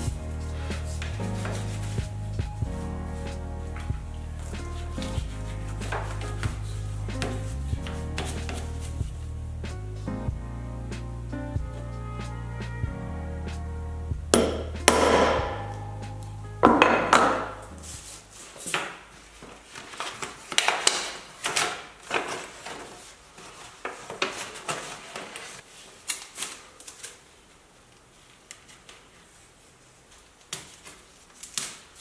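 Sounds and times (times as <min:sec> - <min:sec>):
paper crinkling and rustling: 0:00.0 - 0:02.4, 0:03.1 - 0:09.0, 0:17.8 - 0:32.0.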